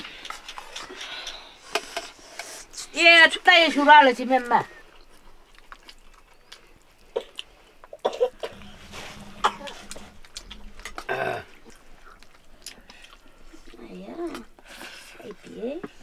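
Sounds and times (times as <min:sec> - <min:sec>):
person coughing: 0:08.0 - 0:08.7, 0:09.3 - 0:09.9.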